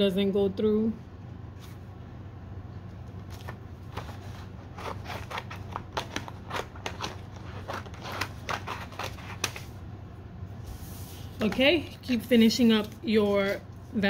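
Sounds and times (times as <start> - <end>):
low steady hum: 0.0 - 14.0
paper crackling and tapping: 3.1 - 9.7.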